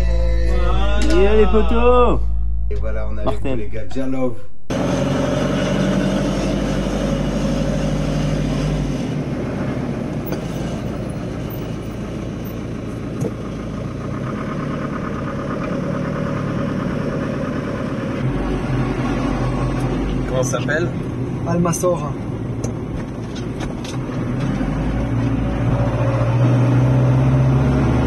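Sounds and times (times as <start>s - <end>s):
engine hum: 0.0s - 28.0s
tyre and road noise: 4.7s - 28.0s.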